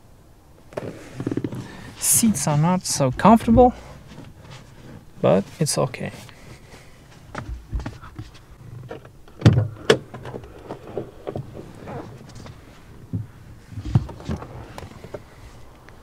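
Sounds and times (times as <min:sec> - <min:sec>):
car door opening: 0:00.8 - 0:05.1, 0:07.3 - 0:15.3.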